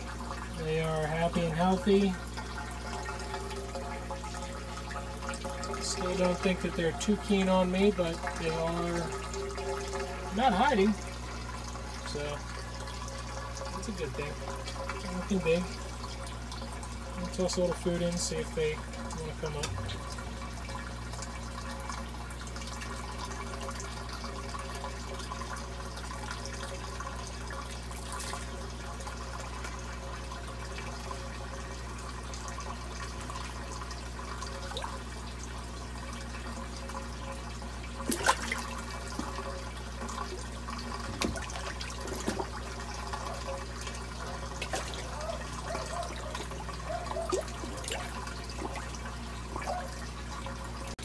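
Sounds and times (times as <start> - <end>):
low steady hum: 0.0 - 51.0
water trickling into tank: 0.0 - 51.0
short sharp water splashes: 38.0 - 39.4, 44.6 - 45.2.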